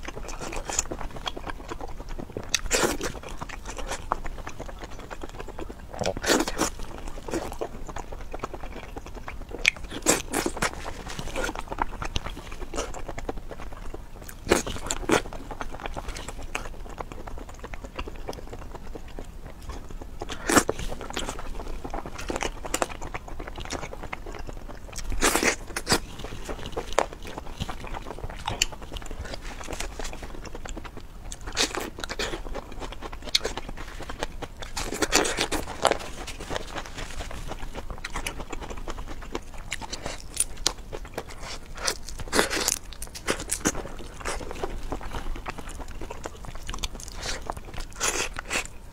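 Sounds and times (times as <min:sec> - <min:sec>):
person eating crunchy seafood: 0:00.0 - 0:48.9.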